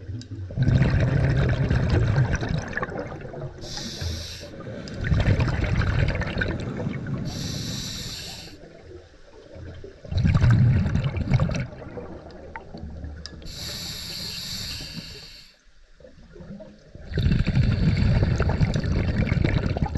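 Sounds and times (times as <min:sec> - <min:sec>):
exhaled bubbles rushing: 0:00.0 - 0:07.6, 0:08.6 - 0:13.2, 0:16.2 - 0:19.9
hissing regulator inhalation: 0:03.6 - 0:04.7, 0:07.3 - 0:08.6, 0:13.5 - 0:15.6.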